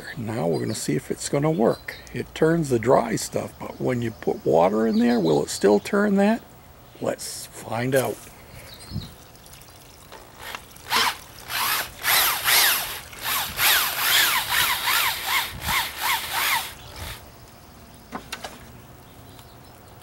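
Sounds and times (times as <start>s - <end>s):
electric drill whining in bursts: 10.4s - 17.2s.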